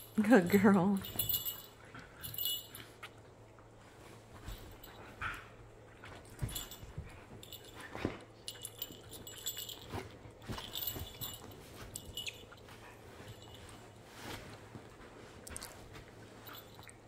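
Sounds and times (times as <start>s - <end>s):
dogs scuffling on a sofa: 3.6s - 17.0s.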